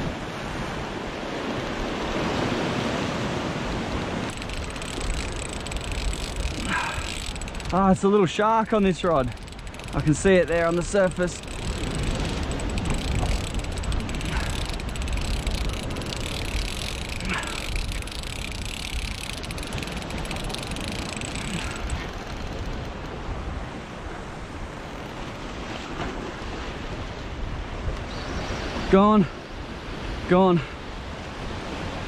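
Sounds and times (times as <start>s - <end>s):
wind on microphone: 3.4s - 28.9s
fishing reel ticking: 4.2s - 23.2s, 24.7s - 25.5s.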